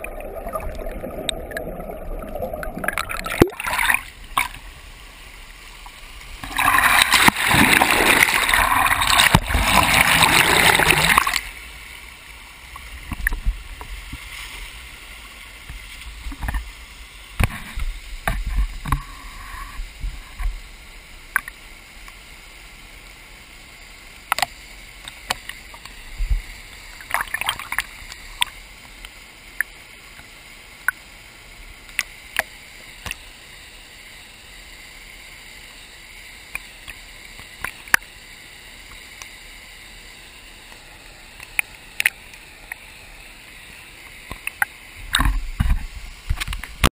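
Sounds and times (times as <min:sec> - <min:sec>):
drips and small splashes: 0:00.0 - 0:04.8, 0:24.2 - 0:31.1
stream water sloshing and gurgling: 0:00.0 - 0:21.6, 0:24.2 - 0:30.3, 0:38.8 - 0:46.9.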